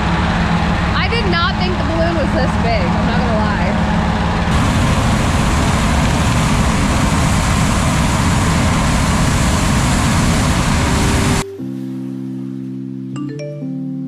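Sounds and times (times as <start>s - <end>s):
propane burner rushing: 0.0s - 11.4s
small gasoline engine: 4.5s - 11.4s.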